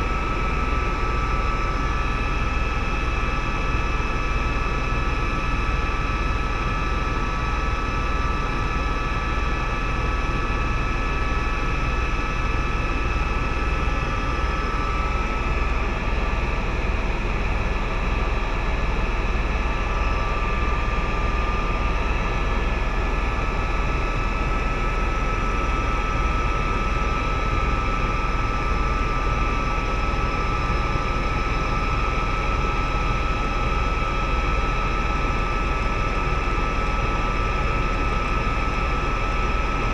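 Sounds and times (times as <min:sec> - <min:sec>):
helicopter engine whine: 0:00.0 - 0:39.9
helicopter cabin rumble: 0:11.7 - 0:27.0.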